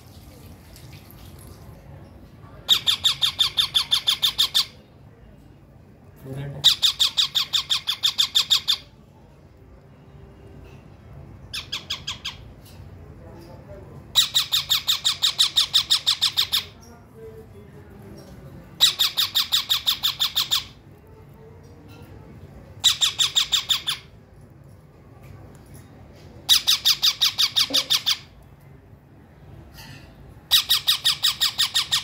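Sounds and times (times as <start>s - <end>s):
parakeet chicks squawking: 2.6s - 4.8s, 6.5s - 8.9s, 11.5s - 12.6s, 14.1s - 16.8s, 18.8s - 20.8s, 22.8s - 24.2s, 26.4s - 28.4s, 30.5s - 32.0s.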